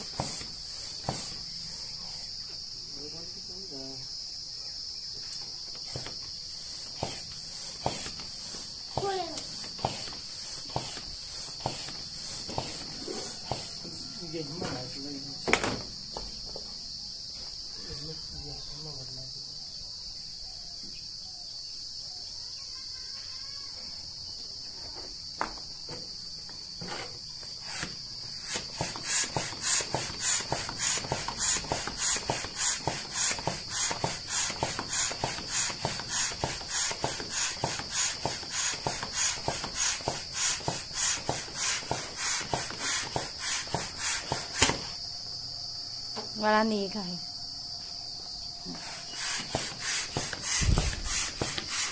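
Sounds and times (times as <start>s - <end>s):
foot air pump strokes: 0.0s - 2.4s, 5.8s - 14.0s, 26.8s - 45.0s, 48.7s - 51.9s
insect chirring: 0.0s - 51.9s.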